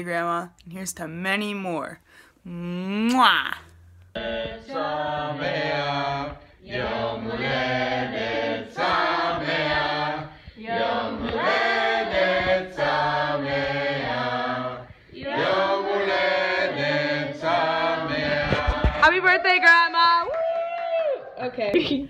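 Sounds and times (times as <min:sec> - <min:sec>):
group singing unaccompanied: 0:04.1 - 0:19.1.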